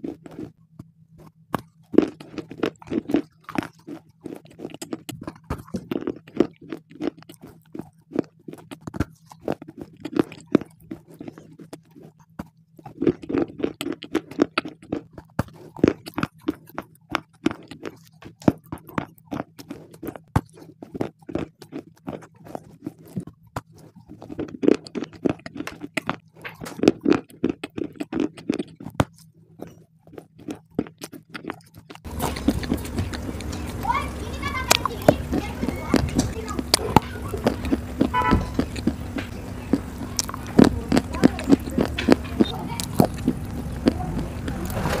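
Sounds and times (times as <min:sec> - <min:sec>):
crunching stone with teeth: 0:00.0 - 0:33.8, 0:34.6 - 0:44.9
loud steady background noise: 0:32.0 - 0:45.0.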